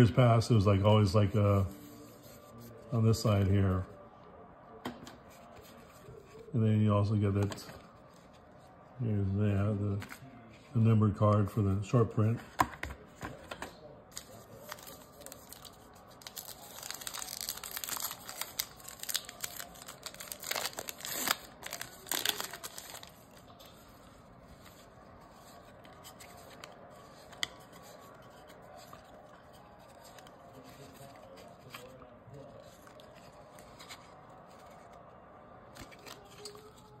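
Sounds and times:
wrapper tearing and crinkling: 14.2 - 23.4.

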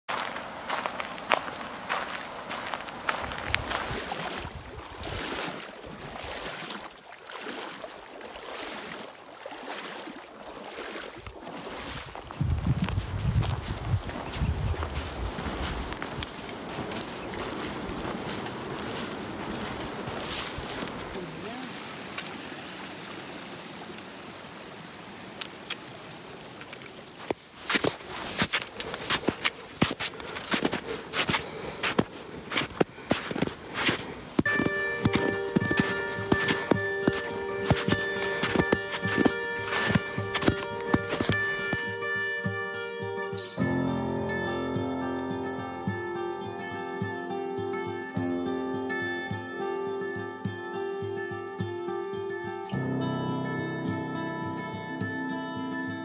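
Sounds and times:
running water sloshing: 0.1 - 42.0
footsteps splashing through stream: 0.1 - 42.6
faint clicks: 25.4 - 25.9.

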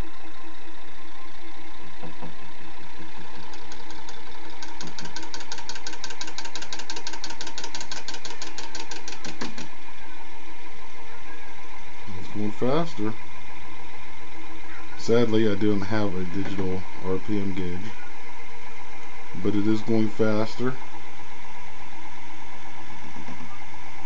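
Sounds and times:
motor humming: 0.0 - 24.0
rapid even ticking: 3.2 - 9.7.

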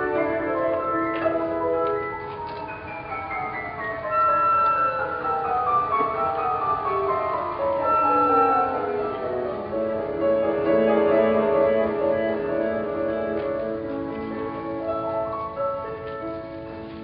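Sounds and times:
bowed strings playing: 8.3 - 14.4.

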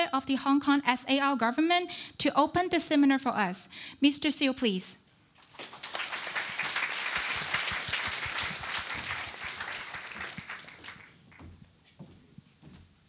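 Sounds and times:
audience applauding: 5.4 - 11.4.

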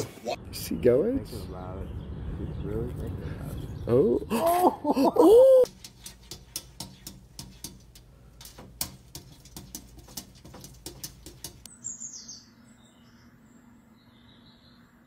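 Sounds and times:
kitten paws tapping on a mirror: 5.7 - 11.7
bird chirps from a television: 11.7 - 13.2.

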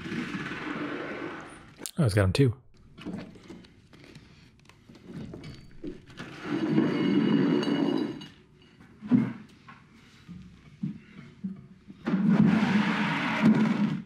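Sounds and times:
plate scraping on concrete: 6.2 - 8.4.

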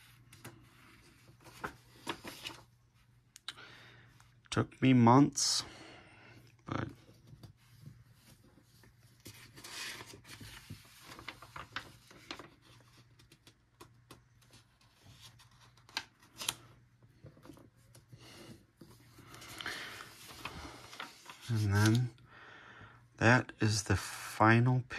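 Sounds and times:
paper pages rustling: 0.0 - 2.8, 7.0 - 22.2.

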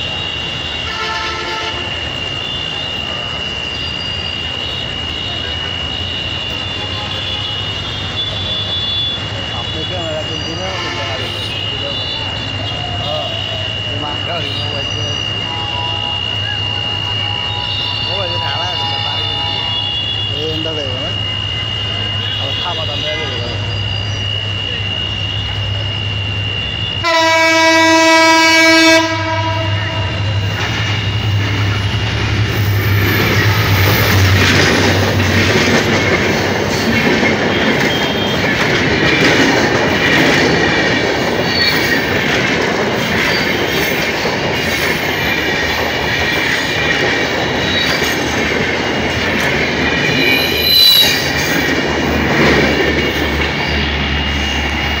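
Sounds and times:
diesel train engine droning: 0.0 - 55.0
train coaches rumbling: 0.0 - 55.0
train horn chord: 0.8 - 2.0, 10.7 - 11.7, 15.4 - 20.4, 27.0 - 35.6
wheels clacking over rail joints: 30.4 - 55.0.

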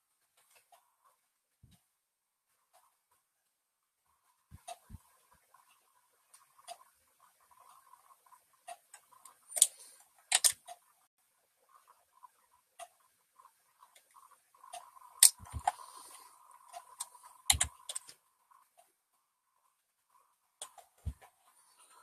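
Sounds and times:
clicks and clunks at computer desk: 17.0 - 18.2.

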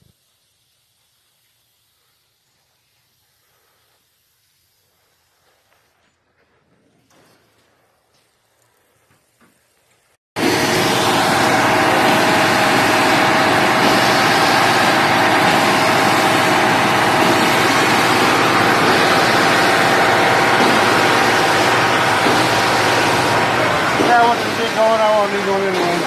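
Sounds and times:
diesel truck engine running: 10.4 - 26.0
mixer drum turning: 10.4 - 26.0.

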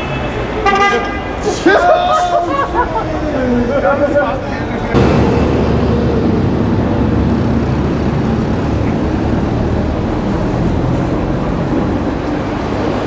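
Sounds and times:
traffic rumble: 0.0 - 13.0
engine running nearby: 4.8 - 13.0.

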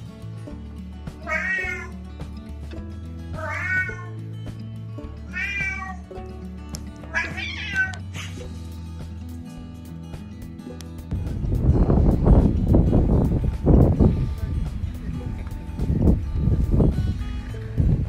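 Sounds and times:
cat meowing: 1.2 - 2.0, 3.4 - 4.2, 5.3 - 6.1, 7.1 - 8.2.

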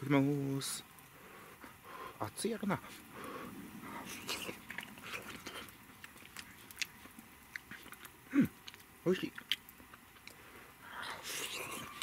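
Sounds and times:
mouth chewing noises: 1.0 - 12.0
person humming mm: 10.9 - 12.0.

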